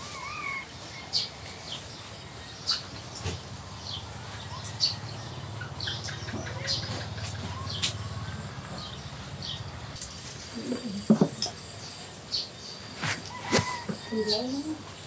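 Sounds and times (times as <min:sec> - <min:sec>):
small birds chirping: 0:00.0 - 0:15.0
faint voices: 0:10.4 - 0:11.6.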